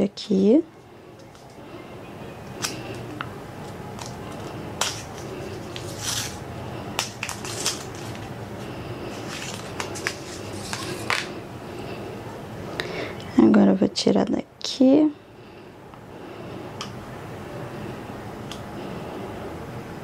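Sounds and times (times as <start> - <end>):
paper crinkling and rustling: 3.6 - 6.4, 7.0 - 11.3.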